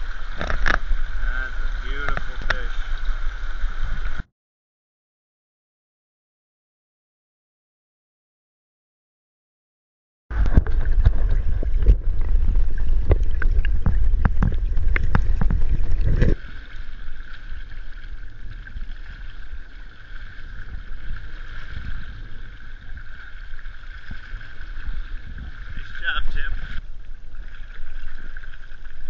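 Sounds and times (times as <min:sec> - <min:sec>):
muffled river current: 0:00.0 - 0:04.3, 0:10.3 - 0:29.0
water knocking against camera: 0:00.3 - 0:01.0, 0:02.0 - 0:02.8, 0:10.3 - 0:16.4.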